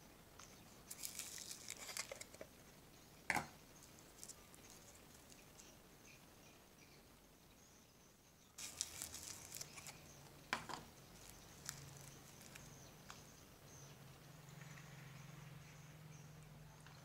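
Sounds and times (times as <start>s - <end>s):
faint low hum: 0.0s - 17.0s
slime squeezed wet crackles: 0.9s - 2.3s, 8.6s - 10.0s, 11.1s - 12.7s.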